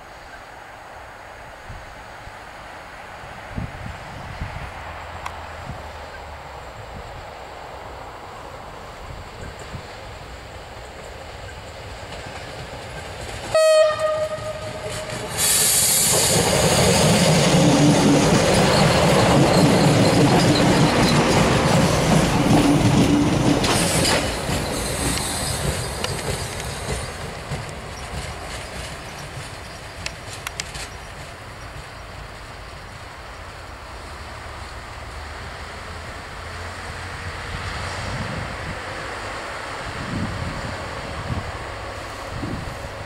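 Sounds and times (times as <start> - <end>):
railcar engine and wheels passing: 0.0 - 43.0
train horn blast: 13.5 - 15.7.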